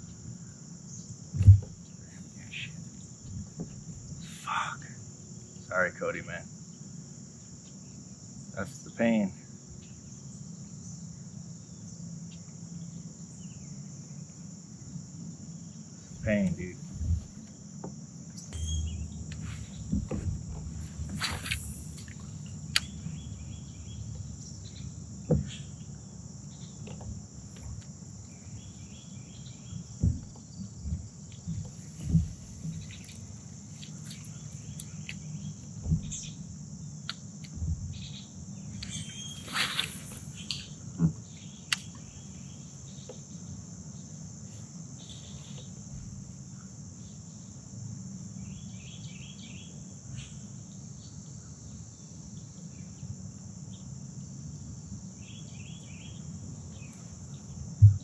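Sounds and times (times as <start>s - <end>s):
high-pitched insect chorus: 0.0s - 58.0s.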